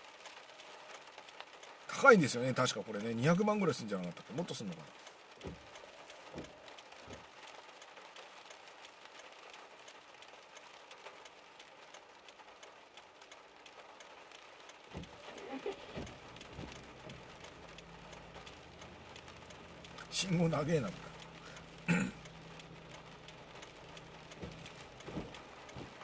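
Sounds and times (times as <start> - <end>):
raindrops ticking on car: 0.0 - 26.0
soft low thumps: 14.9 - 17.8, 21.8 - 26.0.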